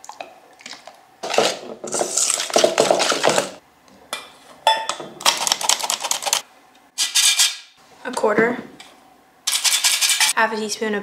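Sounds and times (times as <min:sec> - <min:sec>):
whisk scraping metal bowl: 0:09.5 - 0:10.4.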